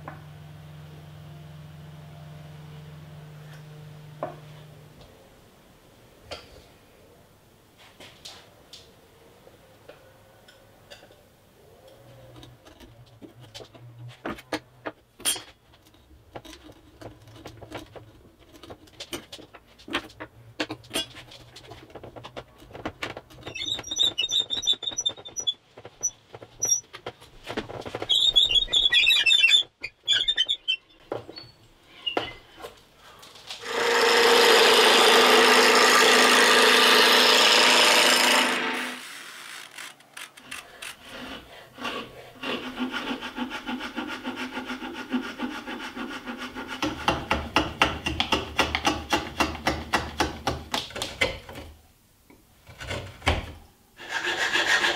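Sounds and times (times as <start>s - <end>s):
auger bit boring into wood: 33.6s - 40.7s
wood lathe turning wood: 33.6s - 49.8s, 54.0s - 54.9s.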